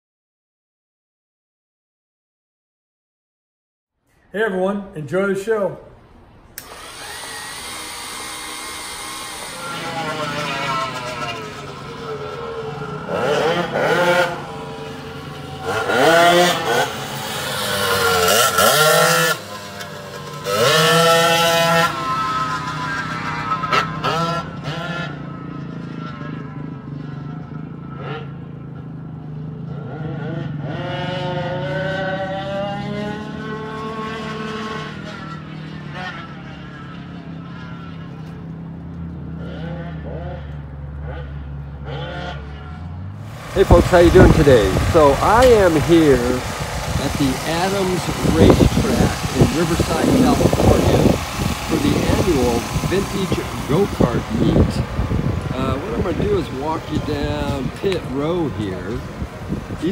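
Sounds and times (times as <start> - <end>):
go-kart engine revving: 6.5 - 59.9
deeper hum: 42.6 - 59.8.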